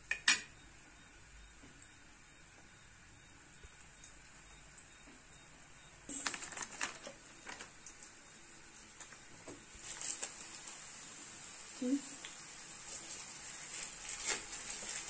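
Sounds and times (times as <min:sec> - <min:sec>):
plastic wrapper rustling: 0:06.1 - 0:08.1, 0:09.8 - 0:10.9, 0:12.8 - 0:15.0.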